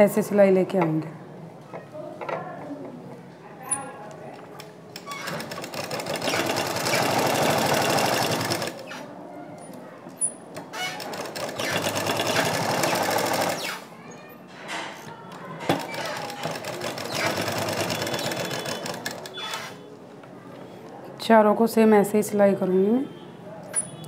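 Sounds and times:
sewing machine stitching: 5.0s - 9.1s, 10.2s - 13.9s, 15.6s - 19.8s.

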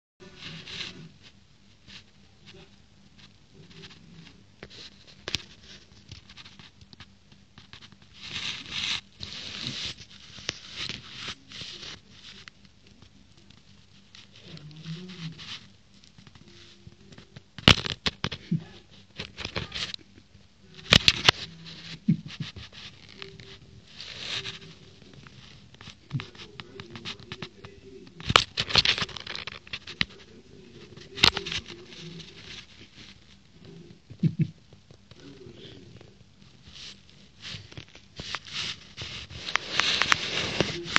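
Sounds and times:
fur scraping on phone microphone: 0.2s - 2.7s, 7.6s - 12.5s, 14.0s - 15.7s, 20.6s - 27.7s, 28.4s - 33.8s, 36.6s - 40.9s
low steady hum: 0.2s - 40.9s.

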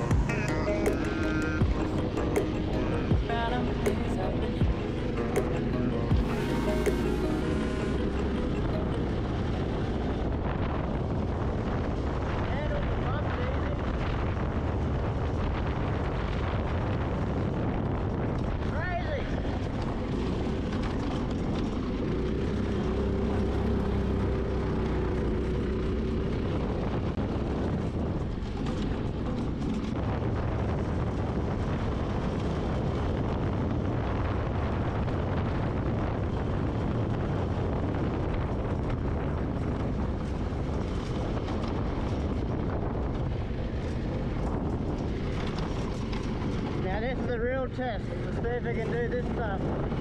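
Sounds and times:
road and wind noise: 0.0s - 50.0s
small engine running under load: 19.4s - 50.0s.

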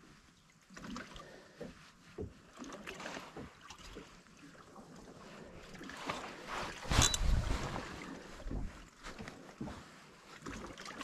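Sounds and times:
wind: 0.0s - 11.0s
sea noise: 2.5s - 11.0s
handling knocks and rustles: 6.0s - 10.5s.

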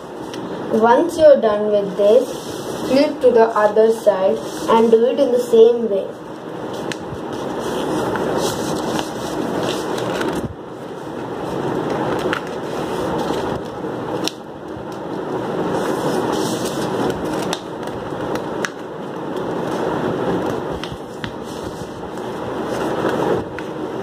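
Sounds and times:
paper being folded and creased: 6.3s - 23.8s.

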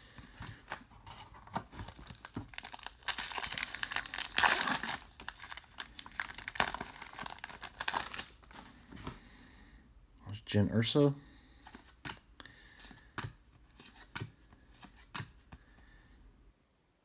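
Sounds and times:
foil wrapper crinkling and tearing: 1.8s - 8.6s.

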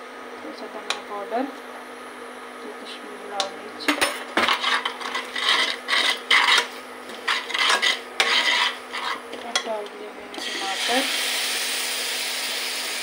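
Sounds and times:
ladle scraping metal pan: 4.4s - 9.7s.

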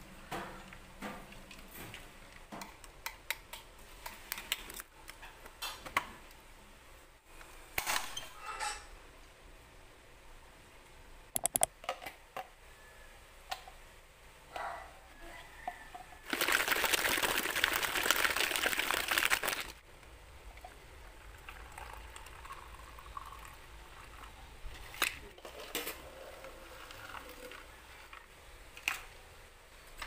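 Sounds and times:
tea pouring into plastic cups: 16.2s - 19.8s, 20.5s - 28.2s.

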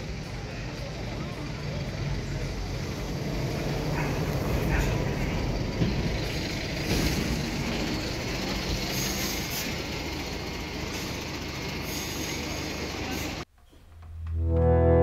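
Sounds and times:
engine running: 0.0s - 13.4s.

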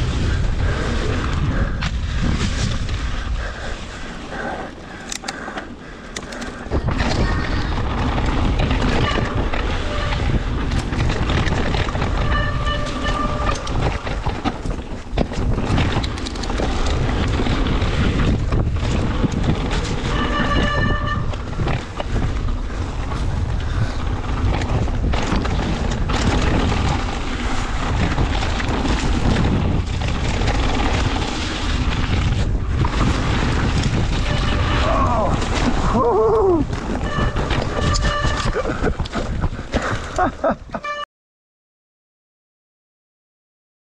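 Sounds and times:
wind buffeting microphone: 0.0s - 40.6s
bike tyre roar: 0.0s - 40.7s
bike rattling over bumps: 0.0s - 41.0s
brief bike squeals: 12.2s - 13.6s, 20.1s - 21.4s, 37.0s - 38.6s.

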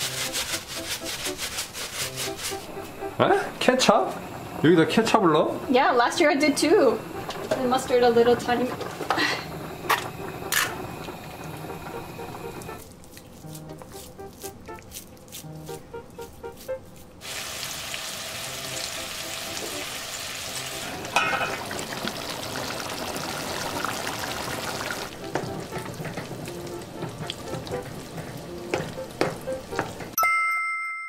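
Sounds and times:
meat sizzling in a frying pan: 0.4s - 12.8s, 17.2s - 26.0s.

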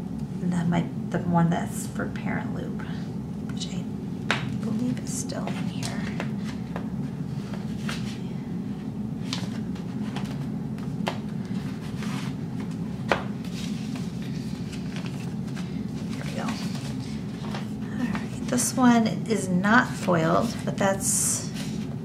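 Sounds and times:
steady low hum: 0.0s - 22.0s
paper pages flipping: 5.5s - 8.2s, 9.2s - 18.5s.

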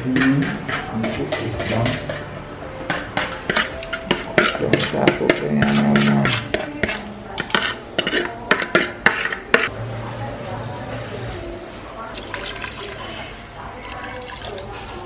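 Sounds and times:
fork scraping against bowl and pot: 0.0s - 2.3s, 3.1s - 9.7s.

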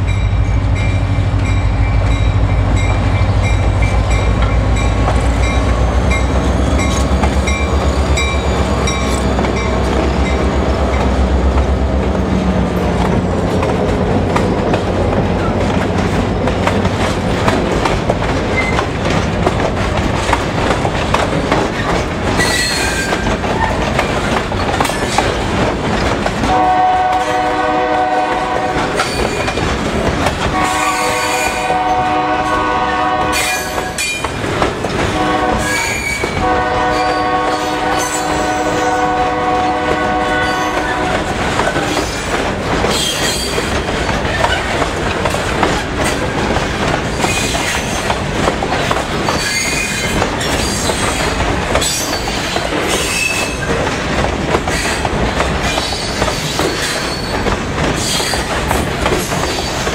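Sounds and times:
freight cars rumbling and clattering: 0.0s - 26.7s, 27.7s - 32.3s, 33.7s - 59.9s
locomotive horn blasts: 26.4s - 29.0s, 30.5s - 34.0s, 35.1s - 41.4s
wheel squeals: 49.3s - 51.2s.

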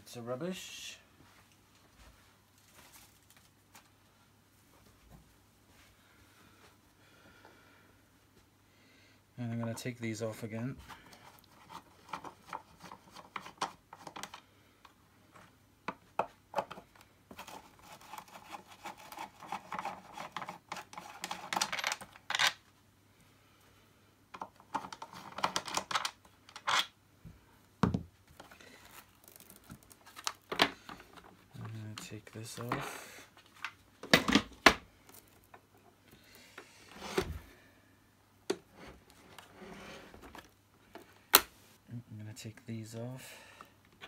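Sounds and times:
plastic parts clicking and tapping: 24.3s - 26.9s.

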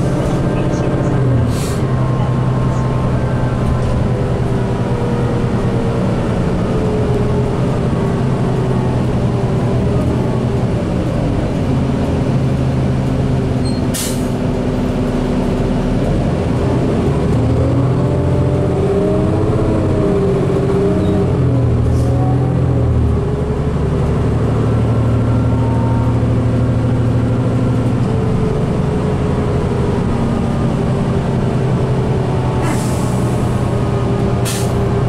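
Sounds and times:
drivetrain whine: 0.0s - 13.8s
bus engine drone: 0.0s - 35.0s.

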